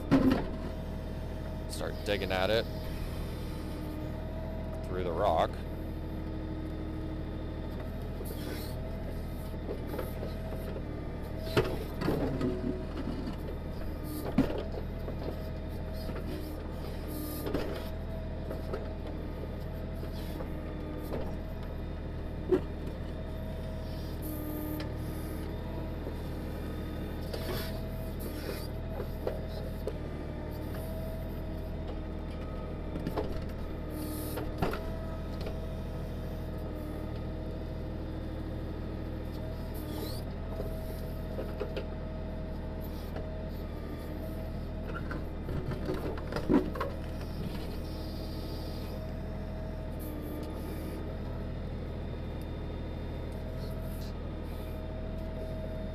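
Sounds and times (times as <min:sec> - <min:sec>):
hydraulic whine: 0:00.0 - 0:42.0
tractor diesel engine running: 0:00.0 - 0:55.9.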